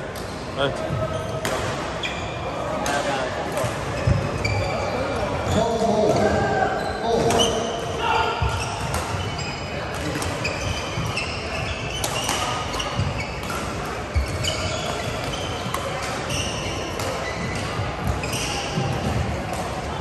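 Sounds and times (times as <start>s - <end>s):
murmur of voices: 0.0s - 20.0s
shoes squeaking on court: 0.1s - 3.0s, 3.6s - 20.0s
racket hitting shuttlecock: 1.4s - 1.9s, 11.9s - 19.8s.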